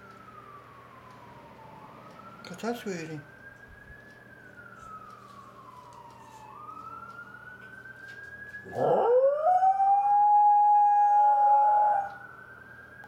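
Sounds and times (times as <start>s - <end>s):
distant fire truck siren: 0.0s - 13.0s
dog howling: 8.7s - 12.2s.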